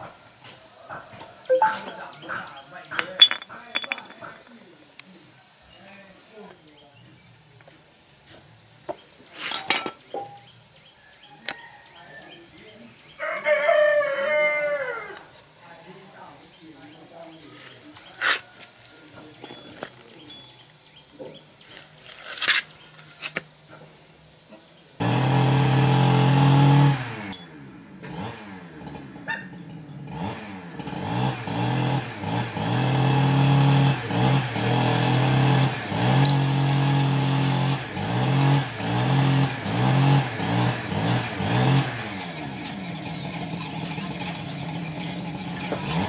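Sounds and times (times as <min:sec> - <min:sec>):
motorcycle engine revving: 0:25.0 - 0:46.0.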